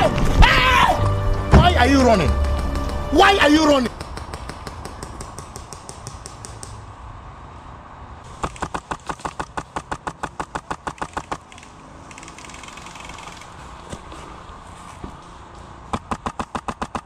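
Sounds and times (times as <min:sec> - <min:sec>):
faint rapid shots: 0:08.3 - 0:13.5.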